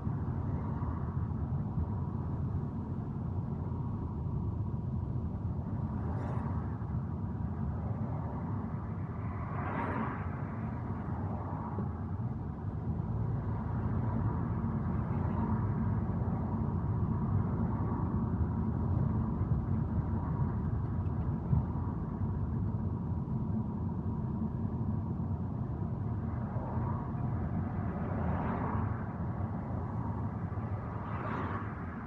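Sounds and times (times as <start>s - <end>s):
car engine and tyre rumble: 0.0s - 32.0s.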